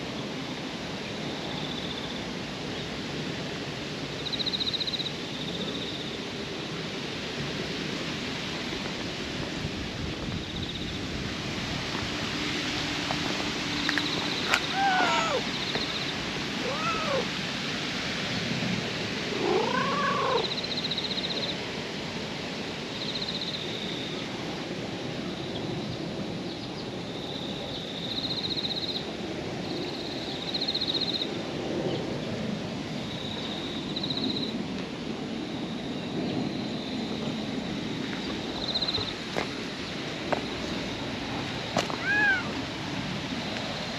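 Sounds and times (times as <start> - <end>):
cat meowing: 14.4 - 15.5, 16.6 - 17.3, 19.4 - 20.4, 42.0 - 42.6.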